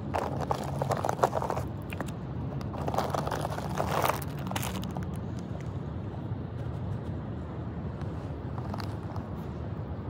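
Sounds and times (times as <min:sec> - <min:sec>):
steady low hum: 0:00.0 - 0:10.0
plastic bag crinkling: 0:00.1 - 0:05.2.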